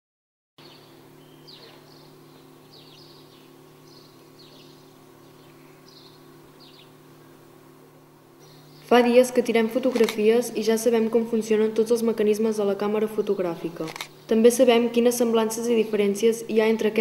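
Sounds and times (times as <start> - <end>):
small birds chirping: 0.6 - 7.4, 8.4 - 9.1
steady low hum: 0.6 - 17.0.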